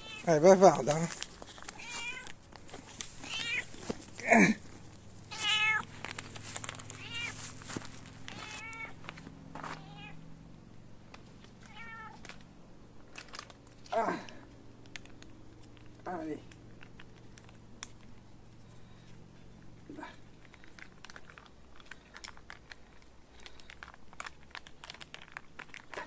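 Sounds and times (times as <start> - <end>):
cat meowing: 0.0 - 0.3, 1.8 - 2.3, 3.2 - 3.7, 5.3 - 5.9, 7.0 - 7.4, 8.3 - 9.0, 9.8 - 10.2, 11.6 - 12.2.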